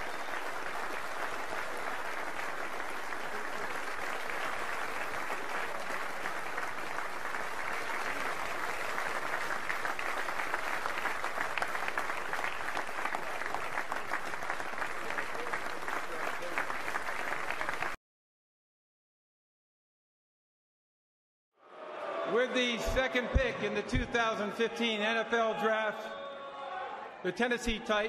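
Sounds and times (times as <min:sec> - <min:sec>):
audience applauding: 0:00.0 - 0:18.0.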